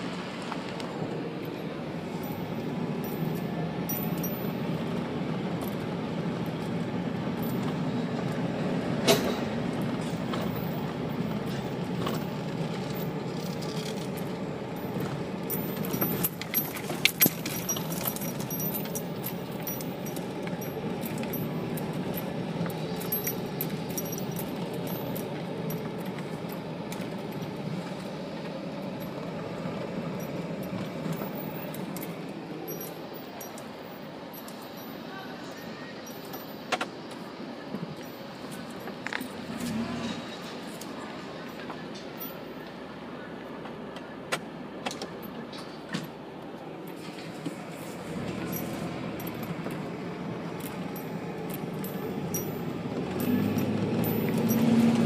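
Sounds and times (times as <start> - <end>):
car engine and tyres rumbling: 0.0 - 55.0
rattles and clicks: 5.6 - 35.0, 46.9 - 55.0.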